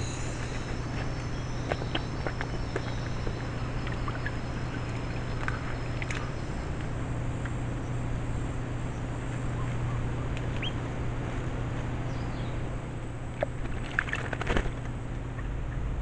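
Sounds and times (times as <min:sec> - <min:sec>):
high insect buzz: 0:00.0 - 0:08.7
steady low hum: 0:00.0 - 0:16.0.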